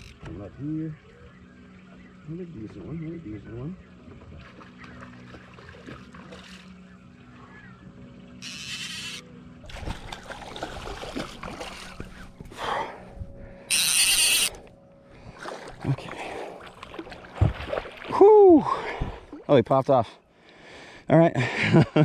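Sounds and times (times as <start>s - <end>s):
low hum: 3.6s - 19.5s
fish splashing in water: 9.6s - 12.4s, 15.3s - 18.2s.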